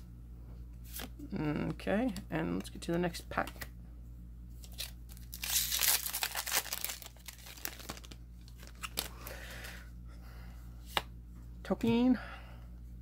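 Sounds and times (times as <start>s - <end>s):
foil wrapper tearing and crinkling: 4.6s - 9.2s.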